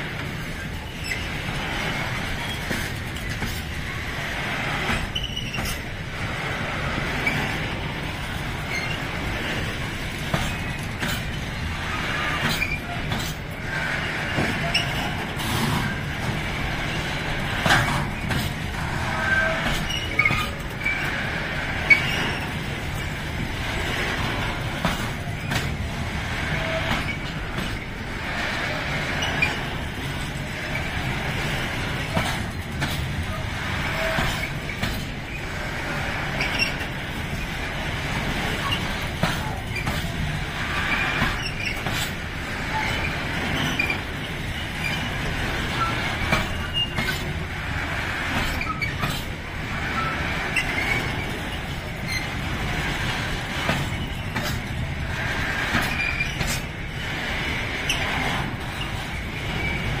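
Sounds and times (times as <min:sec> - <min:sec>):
train wheels rumbling on rails: 0:00.0 - 1:00.0
wheel squeaks: 0:00.4 - 0:03.6, 0:04.9 - 0:06.0, 0:08.6 - 0:09.7, 0:10.3 - 0:23.6, 0:26.5 - 0:28.0, 0:36.3 - 0:37.5, 0:38.5 - 0:47.5, 0:48.3 - 0:52.6, 0:53.6 - 0:54.9, 0:55.6 - 0:56.7, 0:57.8 - 1:00.0
clicks over rail joints: 0:12.3 - 0:13.6, 0:17.4 - 0:21.2, 0:21.9 - 0:28.0, 0:32.0 - 0:33.2, 0:34.0 - 0:35.3, 0:38.3 - 0:40.2, 0:40.9 - 0:44.0, 0:45.7 - 0:47.4, 0:48.2 - 0:56.7.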